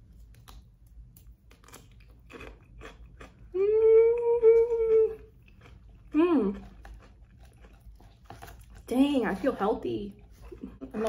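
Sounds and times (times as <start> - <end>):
cucumber crunching: 0.0 - 9.3
closed-mouth hum: 3.4 - 6.9.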